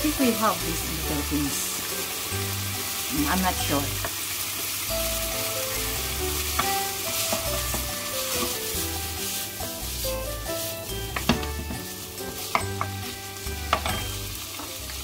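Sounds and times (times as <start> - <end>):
chicken and onions sizzling in oil: 0.0 - 15.0
wooden spatula stirring: 5.1 - 13.9.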